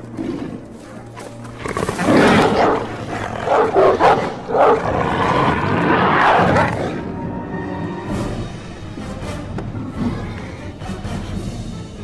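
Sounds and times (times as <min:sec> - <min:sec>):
monster dog snarling: 0:00.0 - 0:07.1.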